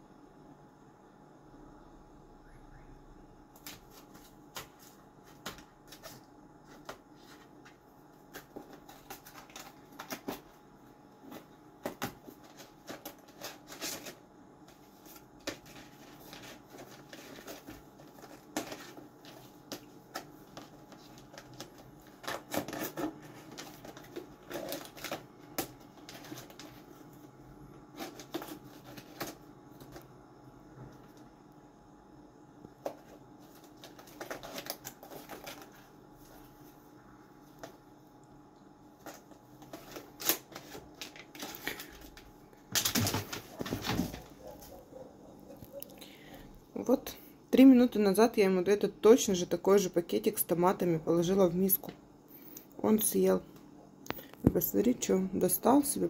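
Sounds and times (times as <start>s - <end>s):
cat rustling cardboard and packets: 3.5s - 30.2s, 32.6s - 38.0s, 38.8s - 47.9s.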